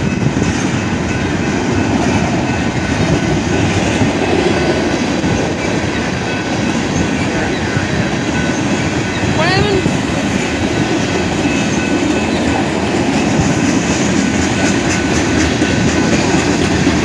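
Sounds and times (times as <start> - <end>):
freight train wheels rolling: 0.0 - 17.0.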